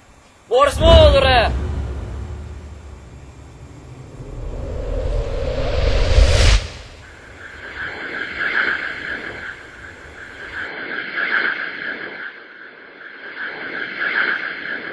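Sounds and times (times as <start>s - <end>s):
rushing hiss: 0.6s - 10.6s
low rumble: 0.7s - 10.6s.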